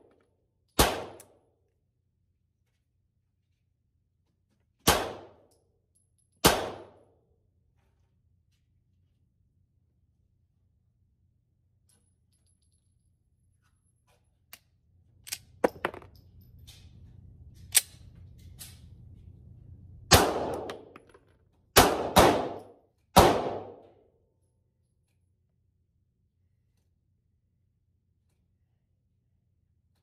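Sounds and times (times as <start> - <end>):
pistol shots with echo: 0.8 - 1.2, 4.9 - 5.4, 6.4 - 7.0, 20.1 - 20.8, 21.8 - 23.8
gun handling clicks and knocks: 13.9 - 19.0, 20.6 - 21.6.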